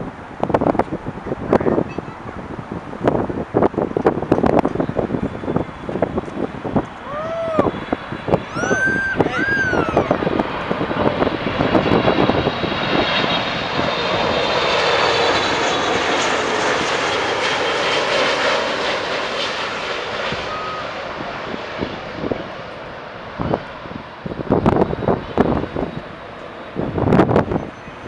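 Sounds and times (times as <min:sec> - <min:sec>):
jet airliner passing overhead: 0:00.0 - 0:28.0.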